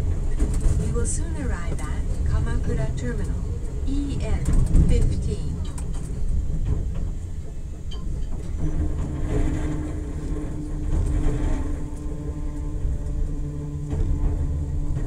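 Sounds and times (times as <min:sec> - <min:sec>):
train wheels rumbling on rails: 0:00.0 - 0:15.0
electric drive hum: 0:08.5 - 0:15.0.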